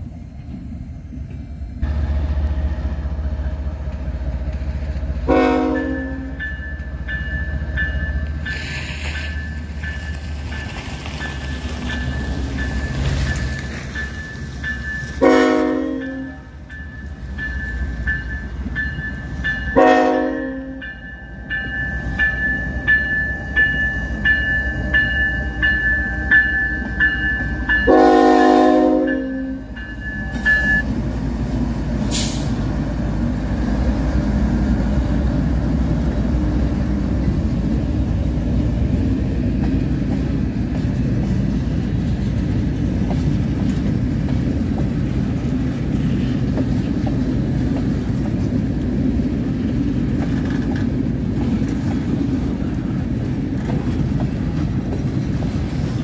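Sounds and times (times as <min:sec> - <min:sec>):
train cars rolling past: 0:00.0 - 0:56.0
locomotive horn blasts: 0:05.3 - 0:06.4, 0:15.2 - 0:16.6, 0:19.8 - 0:20.8, 0:27.3 - 0:30.8
locomotive bell ringing: 0:05.6 - 0:30.9.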